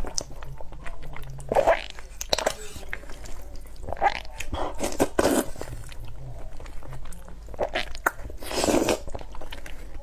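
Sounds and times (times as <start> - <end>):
person chewing: 0.0 - 10.0
person slurping noodles: 4.0 - 5.6, 7.6 - 9.1.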